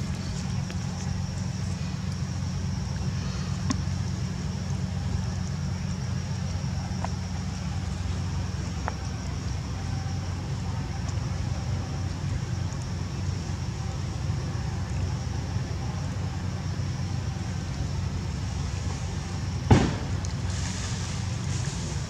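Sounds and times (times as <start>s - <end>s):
sharp knock: 19.7s - 20.0s.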